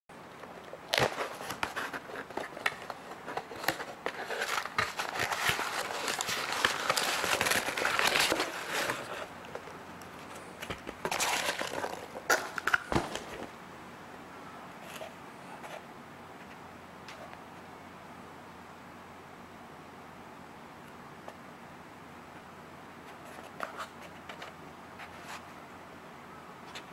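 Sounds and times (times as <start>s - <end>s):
cardboard rustling and scraping: 0.4s - 13.5s, 23.1s - 25.6s.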